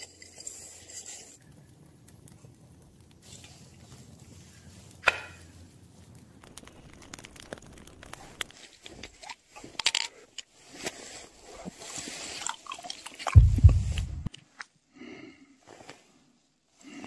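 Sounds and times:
small clicks and scrapes: 0.0 - 5.6, 6.4 - 13.4
low thump: 13.4 - 14.3.

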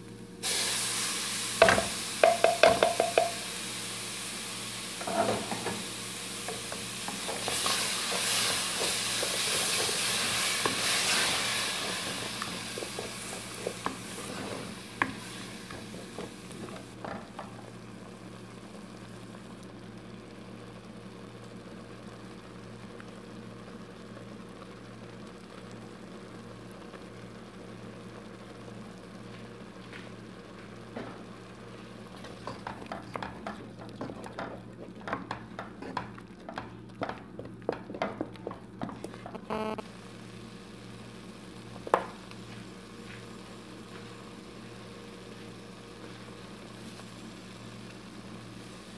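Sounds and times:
sauce sizzling in hot oil: 0.0 - 48.9
wooden spoon scraping pot: 7.1 - 16.9.

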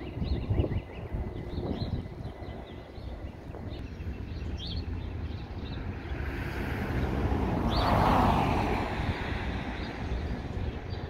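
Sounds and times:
small birds chirping: 0.0 - 8.1, 9.2 - 11.0
vehicle passing: 5.6 - 11.0.

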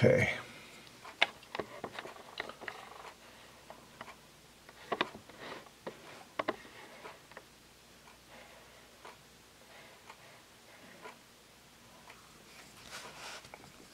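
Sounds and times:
soft scratchy rustles: 12.3 - 13.9.

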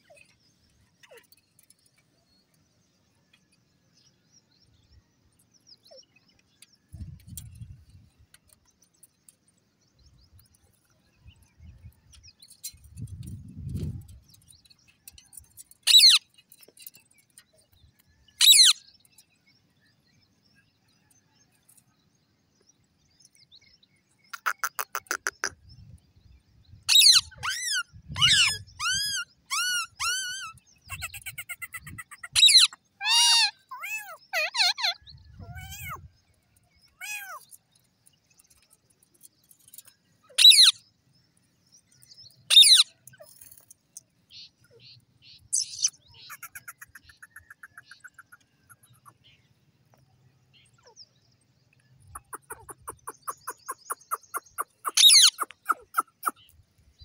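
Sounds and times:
parakeets chattering and chirping: 15.6 - 16.3, 24.3 - 25.6, 26.9 - 36.1, 39.7 - 40.7, 42.4 - 43.6, 44.4 - 49.2, 52.1 - 56.5
parakeets screeching: 26.9 - 36.0, 42.5 - 42.8, 52.2 - 56.4.

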